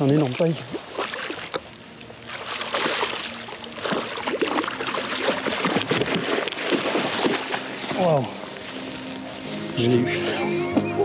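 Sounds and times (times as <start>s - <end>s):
fish thrashing and splashing: 0.0s - 8.6s
water sloshing: 0.0s - 9.6s.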